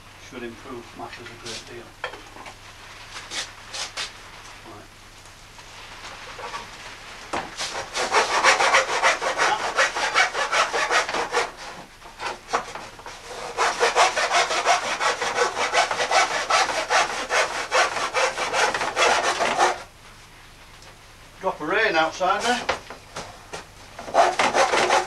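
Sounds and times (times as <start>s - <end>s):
hand saw cutting wood: 7.6s - 19.9s, 24.0s - 25.0s.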